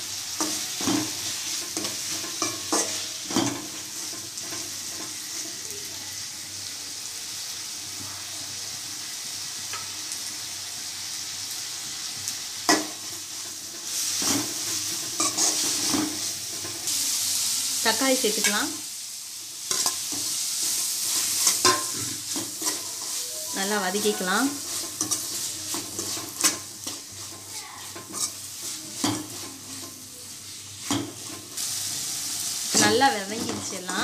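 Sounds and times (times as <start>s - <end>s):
onions sizzling in oil: 0.0s - 34.0s
metal spoon scraping pan: 0.4s - 5.2s, 13.7s - 16.8s, 19.7s - 31.6s.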